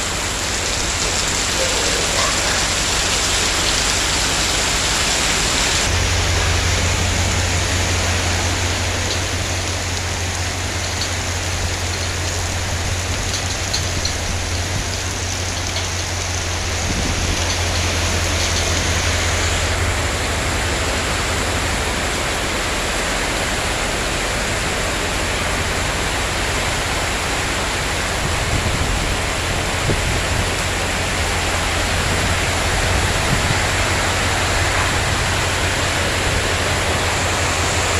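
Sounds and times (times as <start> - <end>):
heavy rain pouring: 0.0 - 37.9
low rumble: 5.9 - 10.4.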